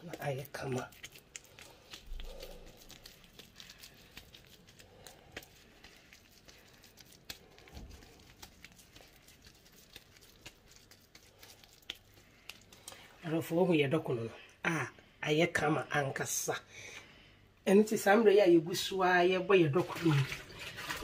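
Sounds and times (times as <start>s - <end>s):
dried corn husks crackling: 0.0s - 13.0s.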